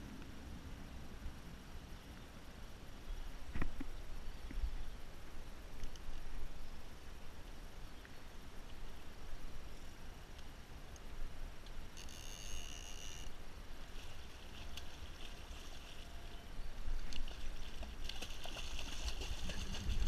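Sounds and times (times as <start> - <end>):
wind rumble on microphone: 16.7 - 20.0.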